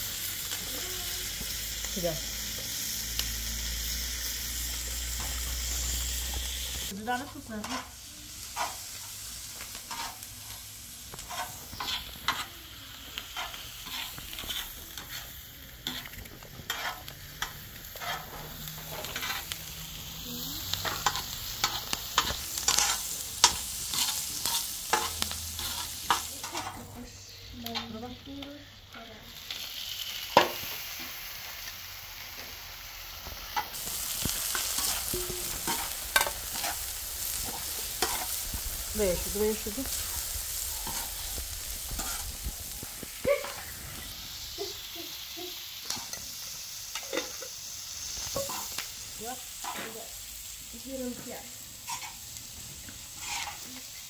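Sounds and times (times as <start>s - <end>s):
vegetables sizzling on griddle: 0.0s - 54.0s
metal spatula scraping and tapping: 7.2s - 8.0s, 9.7s - 10.2s, 11.1s - 12.5s, 13.4s - 19.5s, 20.8s - 26.8s, 33.6s - 36.8s, 41.9s - 42.4s, 51.9s - 52.2s, 53.2s - 53.8s.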